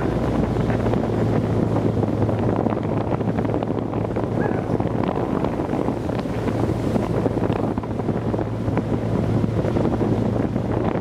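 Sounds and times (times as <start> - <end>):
atv engine rumble: 0.0 - 11.0
wind buffeting microphone: 0.0 - 11.0.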